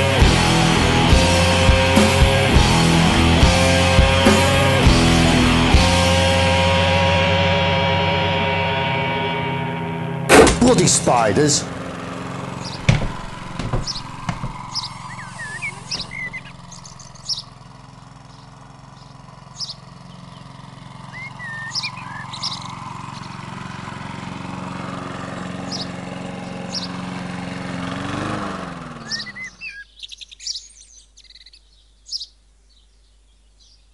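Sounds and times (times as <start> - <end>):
birds chirping: 10.6 - 33.9.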